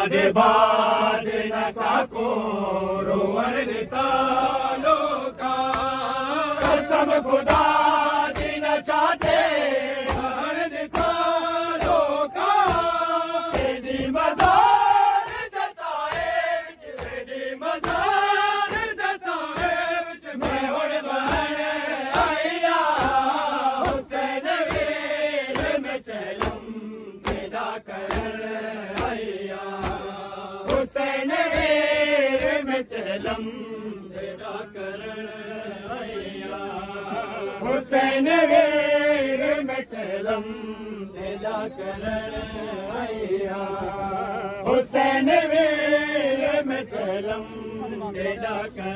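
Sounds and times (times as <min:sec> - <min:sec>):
crowd chanting a lament: 0:00.0 - 0:48.9
hand slaps on chests: 0:04.8 - 0:34.5, 0:42.2 - 0:45.0.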